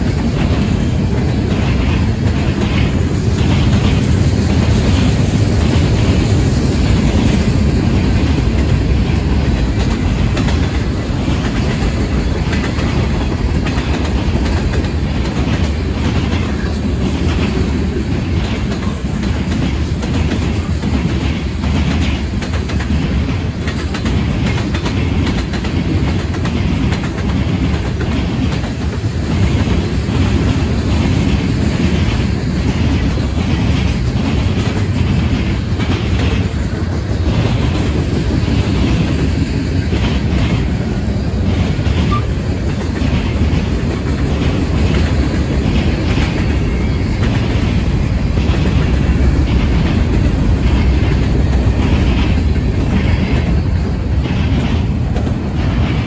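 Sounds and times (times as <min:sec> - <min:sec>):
train wheels rumbling on rail: 0:00.0 - 0:56.0
wheels clicking over rail joints: 0:00.0 - 0:56.0.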